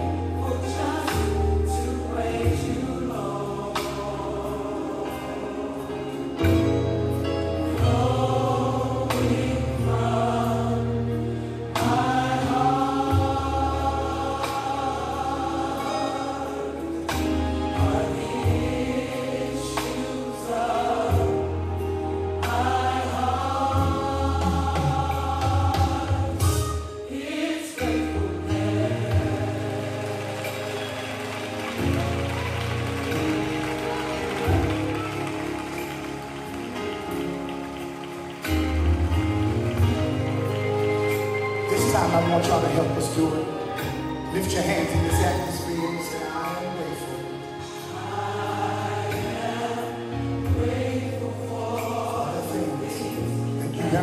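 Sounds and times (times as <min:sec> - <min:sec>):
choir singing gospel: 0:00.0 - 0:54.0
drums: 0:01.0 - 0:01.8, 0:17.0 - 0:18.8, 0:23.6 - 0:41.4.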